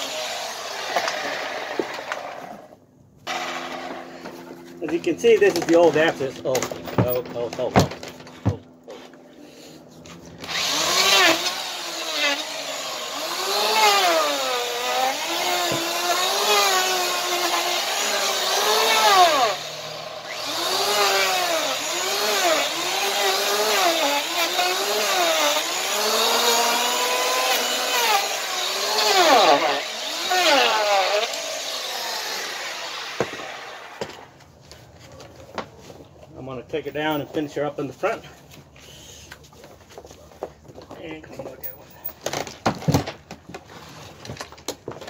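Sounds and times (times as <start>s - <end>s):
electric hand planer motor: 0.0s - 2.6s, 3.3s - 4.6s, 10.1s - 34.2s.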